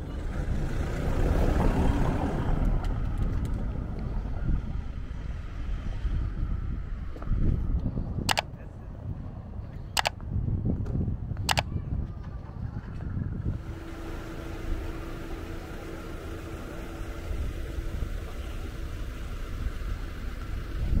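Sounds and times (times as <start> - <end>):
distant car traffic: 0.0 - 10.4, 13.4 - 21.0
wind on microphone: 2.1 - 13.7
sharp clicks: 11.4 - 11.7.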